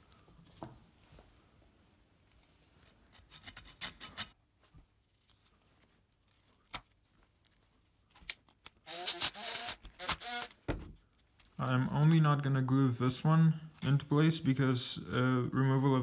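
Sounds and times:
screwdriver driving screw into wood: 0:08.9 - 0:10.6.

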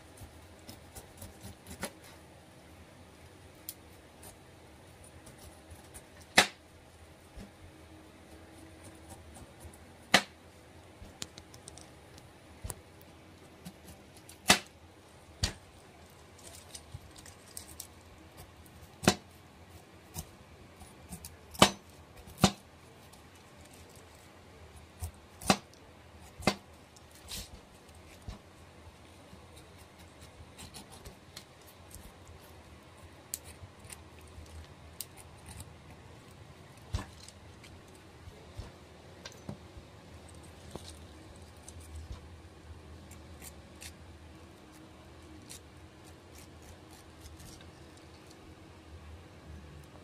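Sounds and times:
knife slicing pineapple rind: 0:00.1 - 0:02.2, 0:03.7 - 0:06.6, 0:16.4 - 0:24.2, 0:24.9 - 0:28.5, 0:29.2 - 0:32.6, 0:44.6 - 0:47.8.

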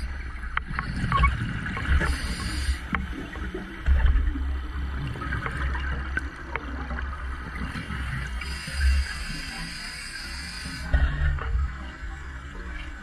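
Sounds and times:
faint clicks: 0:00.5 - 0:03.1
diver regulator hissing: 0:02.0 - 0:02.9, 0:08.4 - 0:10.9.

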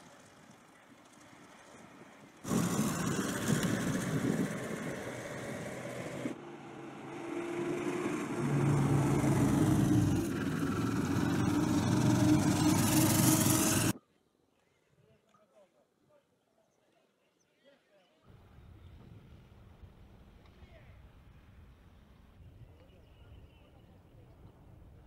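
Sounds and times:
armoured vehicle engine humming: 0:00.0 - 0:14.0.

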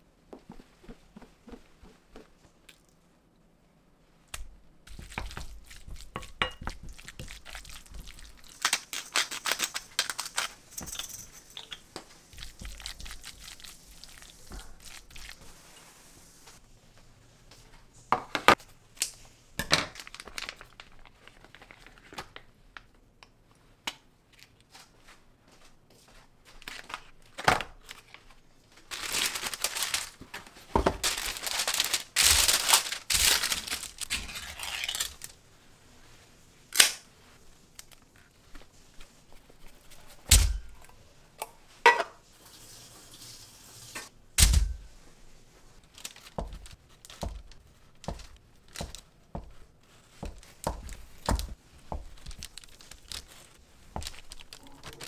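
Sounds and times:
packaging rustling and tearing: 0:07.0 - 0:10.7, 0:19.9 - 0:22.5, 0:26.6 - 0:35.4, 0:45.8 - 0:49.1, 0:50.0 - 0:55.0.

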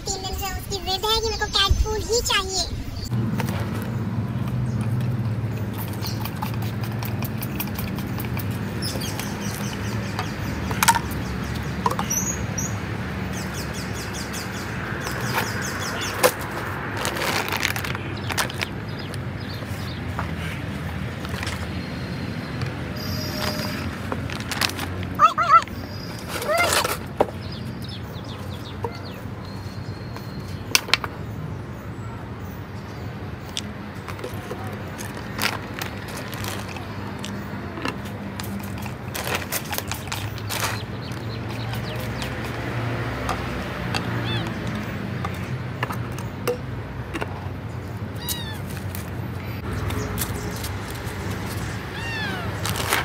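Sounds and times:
plastic bottles clicking and knocking: 0:05.7 - 0:11.2, 0:11.8 - 0:12.3, 0:16.2 - 0:19.3, 0:33.5 - 0:47.3
cat meowing: 0:44.1 - 0:44.6, 0:48.2 - 0:48.7, 0:51.9 - 0:52.7.

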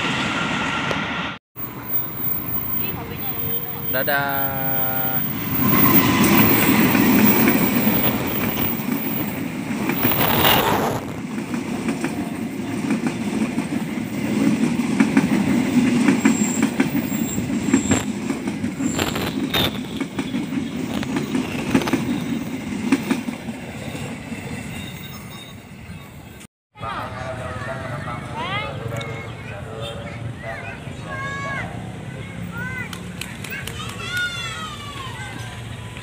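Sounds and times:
diesel train rumbling past: 0:00.0 - 0:36.0
high wheel squeals: 0:01.6 - 0:09.4, 0:16.2 - 0:18.1, 0:23.7 - 0:25.9
wheels clacking over rail joints: 0:01.8 - 0:24.6.

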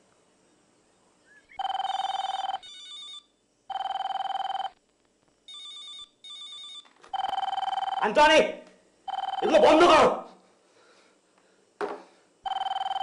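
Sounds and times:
mobile phone electronic ringtone: 0:01.6 - 0:04.8, 0:05.5 - 0:08.1, 0:09.1 - 0:09.6, 0:12.5 - 0:13.0.

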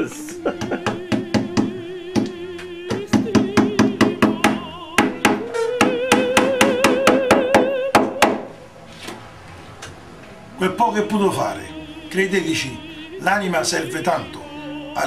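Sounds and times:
hammer tapping a nail: 0:00.6 - 0:08.5.

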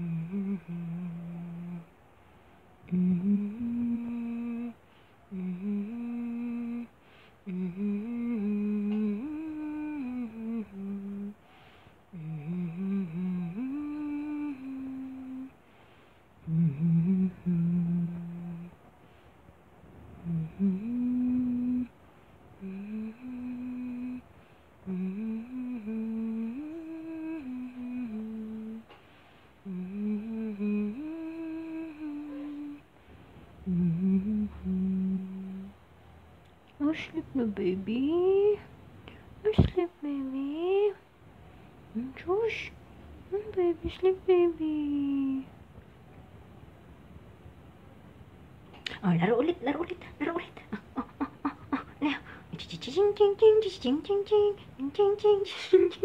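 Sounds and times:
person humming lullaby: 0:00.0 - 0:01.9, 0:02.9 - 0:11.4, 0:12.1 - 0:15.6, 0:16.4 - 0:18.8, 0:20.2 - 0:29.0, 0:29.6 - 0:32.9, 0:33.6 - 0:35.8, 0:39.5 - 0:41.0, 0:41.9 - 0:42.7, 0:43.3 - 0:45.6, 0:50.2 - 0:56.0.

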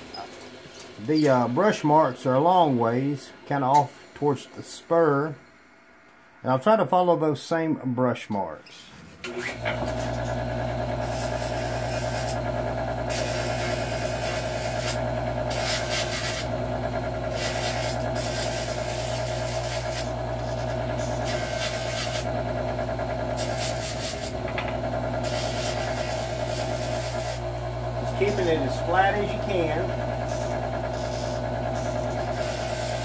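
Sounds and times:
wheel motor humming: 0:09.2 - 0:33.0
metal grinding on polishing wheel: 0:09.7 - 0:16.6, 0:17.3 - 0:22.4, 0:23.1 - 0:27.4, 0:28.0 - 0:33.0.

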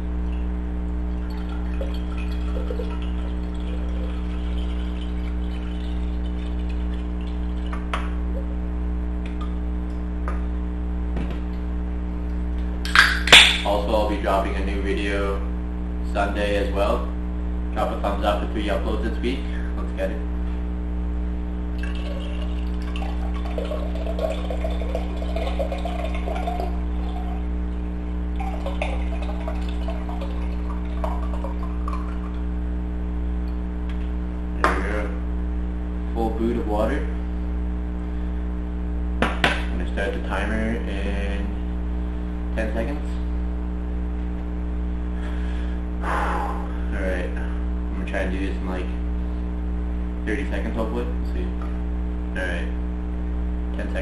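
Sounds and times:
low electrical hum: 0:00.0 - 0:54.0
water pouring into a glass: 0:01.1 - 0:07.9, 0:21.8 - 0:27.5, 0:28.3 - 0:32.4.

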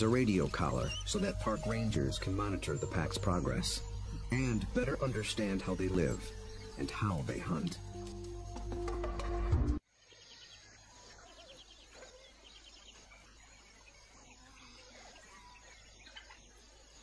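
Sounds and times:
music: 0:00.0 - 0:09.8
birds or insects chirping: 0:00.0 - 0:17.0.

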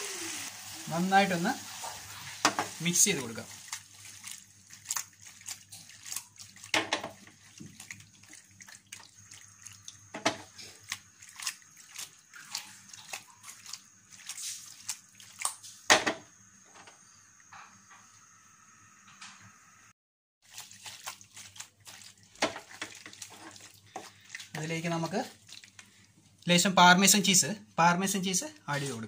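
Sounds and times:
spatula stirring pasta in pan: 0:00.6 - 0:15.5, 0:20.4 - 0:26.1.

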